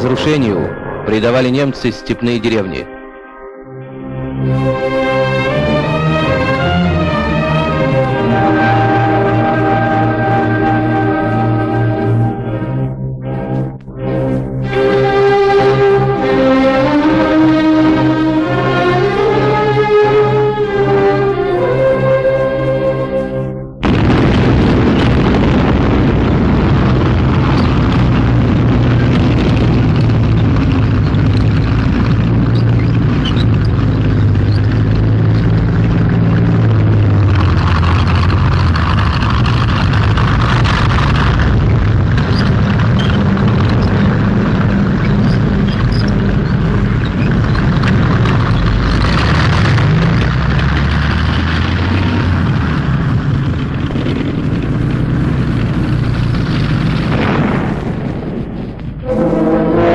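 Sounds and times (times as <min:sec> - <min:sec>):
tank engines rumbling: 0:00.0 - 0:02.8, 0:04.2 - 0:59.9
explosions: 0:23.8 - 0:59.9.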